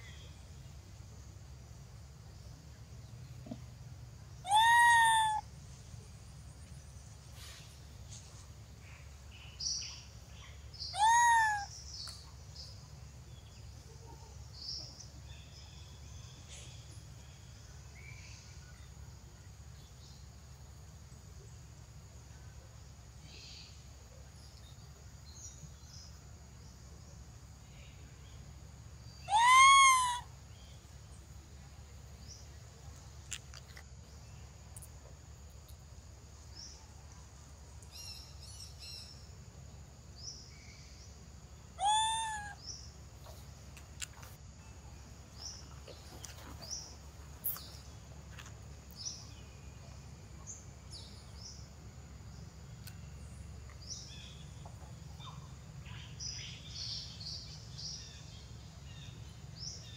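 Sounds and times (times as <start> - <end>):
monkey crying: 4.5 - 5.4, 11.0 - 11.7, 29.3 - 30.3, 41.8 - 42.6.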